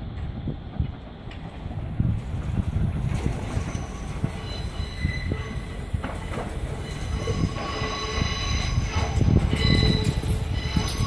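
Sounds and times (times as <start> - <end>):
train rumble: 0.0 - 11.0
train wheels squealing: 3.2 - 11.0.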